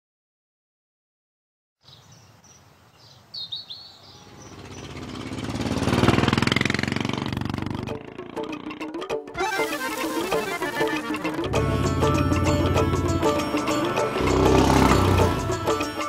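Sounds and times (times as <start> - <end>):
birds chirping: 1.8 - 6.7
faint rural ambience: 1.8 - 7.4
motorcycle engine passing: 4.0 - 9.1, 10.1 - 16.0.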